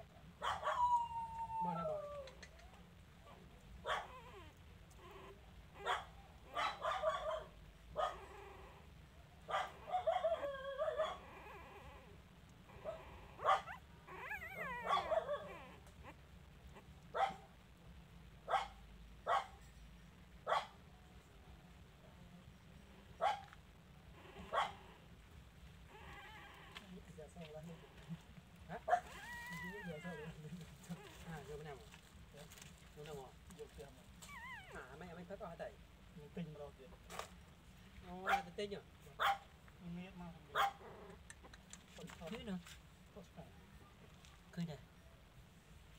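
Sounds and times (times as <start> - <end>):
puppies whimpering and yelping: 0.7 - 2.6, 12.7 - 16.9, 29.0 - 30.4, 34.2 - 35.2
puppies whining: 12.7 - 16.2, 29.0 - 30.4, 34.2 - 35.1.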